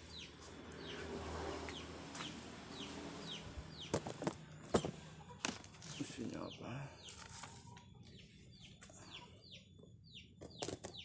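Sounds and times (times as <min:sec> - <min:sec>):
chick peeping: 0:05.0 - 0:11.0.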